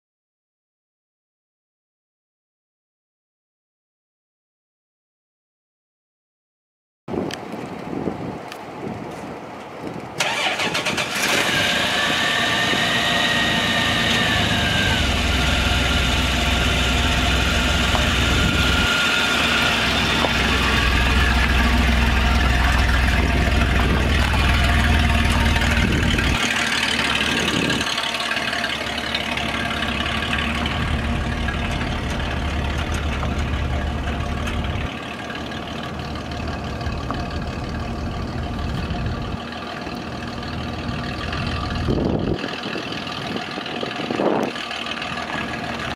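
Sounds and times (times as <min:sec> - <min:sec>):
high engine whine: 0:07.2 - 0:45.9
engine starting and running: 0:10.2 - 0:45.9.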